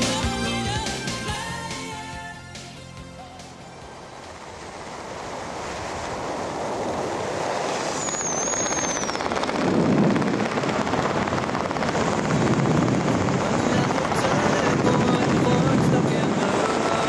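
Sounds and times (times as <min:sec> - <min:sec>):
wind rushing over microphone: 0:03.9 - 0:17.0
high falling whistle: 0:07.4 - 0:09.6.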